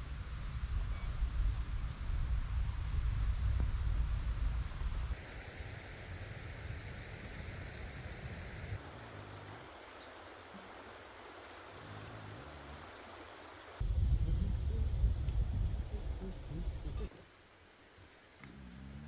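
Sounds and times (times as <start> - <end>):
creek flowing: 5.2 - 13.8
low rumble: 13.8 - 17.1.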